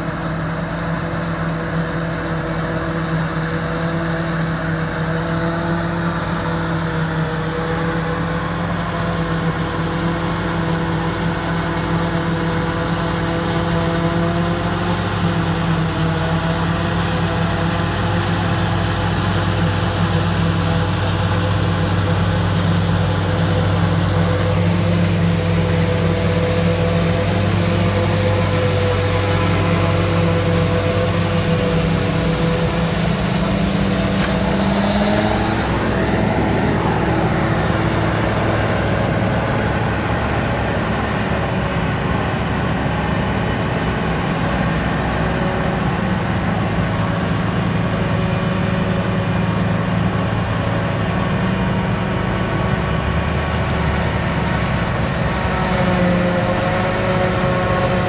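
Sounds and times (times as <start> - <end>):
tractor engine droning: 0.0 - 58.0
forage harvester chopping maize: 12.0 - 36.1.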